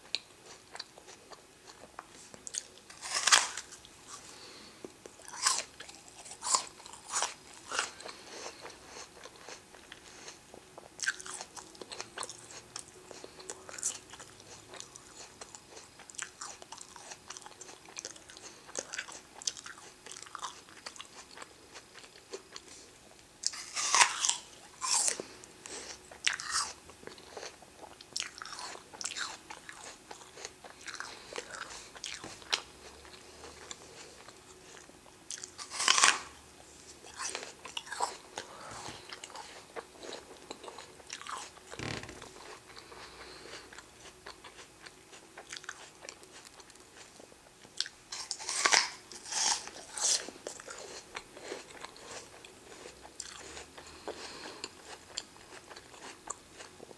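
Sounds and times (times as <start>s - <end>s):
crunchy chewing of crisp food: 0.0s - 56.9s.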